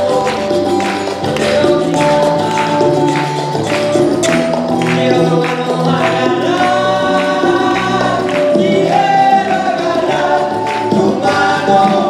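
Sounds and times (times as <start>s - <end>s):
acoustic guitar: 0.0s - 12.0s
group of voices singing: 0.0s - 12.0s.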